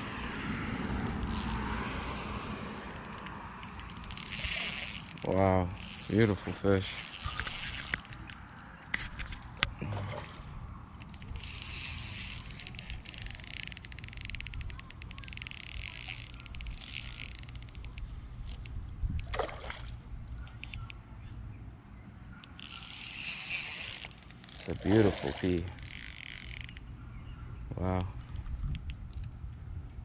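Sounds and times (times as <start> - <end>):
sharp clicks: 0.0 - 2.2, 2.8 - 6.4
water splashing and sloshing: 6.4 - 13.1, 19.2 - 20.1.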